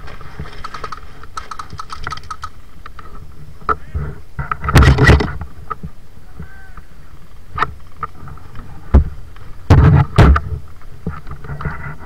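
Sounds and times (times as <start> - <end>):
airsoft gunfire: 0.6 - 2.6.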